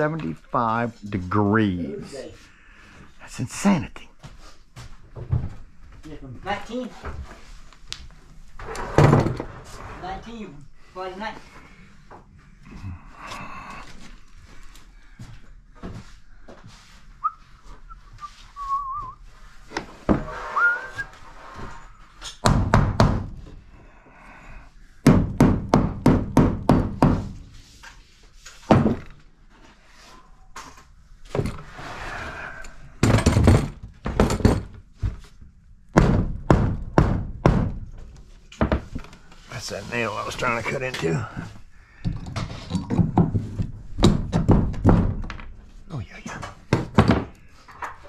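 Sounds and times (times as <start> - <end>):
high wavering whistle: 17.2 - 19.2, 20.4 - 21.2
hammer striking wood: 22.4 - 23.4, 25.0 - 27.3, 35.9 - 37.9.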